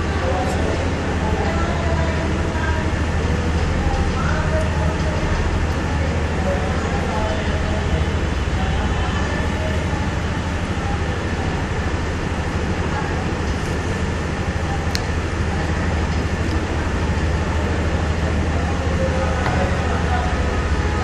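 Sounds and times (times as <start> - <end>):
low rumbling noise: 0.0 - 21.0.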